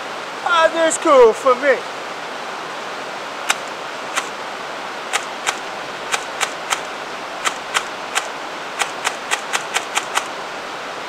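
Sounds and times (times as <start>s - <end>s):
river rushing: 0.0s - 11.0s
airsoft gun sharp cracks: 3.5s - 4.3s, 5.1s - 10.3s.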